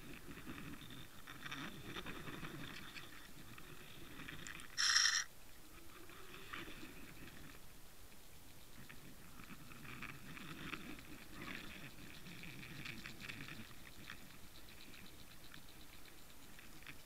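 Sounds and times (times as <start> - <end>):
underwater crackling and clicking: 0.0 - 5.0, 8.8 - 17.0
low rumble of moving water: 5.6 - 17.0.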